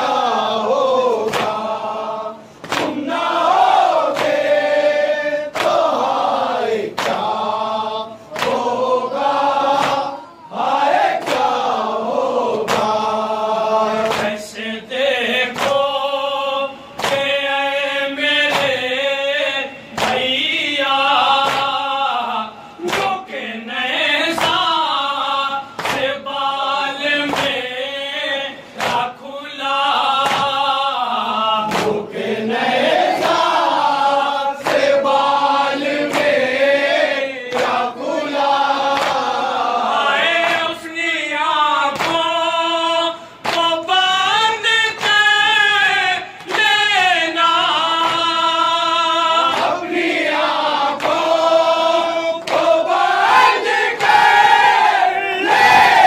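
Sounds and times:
men chanting in unison: 0.0 - 56.0
hand slaps on chest: 1.3 - 1.6, 2.6 - 3.0, 4.1 - 4.4, 5.5 - 5.8, 7.0 - 7.3, 8.3 - 8.6, 9.8 - 10.1, 12.5 - 13.0, 14.0 - 14.4, 15.5 - 15.8, 17.0 - 17.3, 18.5 - 18.8, 21.4 - 21.8, 25.8 - 26.1, 27.3 - 27.6, 28.8 - 29.1, 30.2 - 30.6, 31.7 - 32.0, 38.9 - 39.3, 41.9 - 42.2, 43.4 - 43.7.

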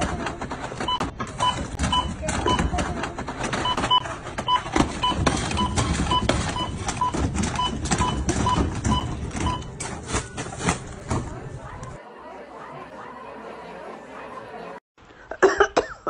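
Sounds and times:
items clattering on counter: 0.0 - 12.0
barcode scanner beeping: 3.6 - 9.8.

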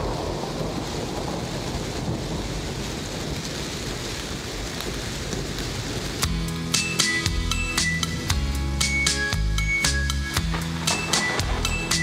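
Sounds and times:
rumbling thunder: 0.0 - 6.2, 10.4 - 12.0
steady rain: 0.0 - 12.0
karaoke backing music: 6.3 - 12.0.

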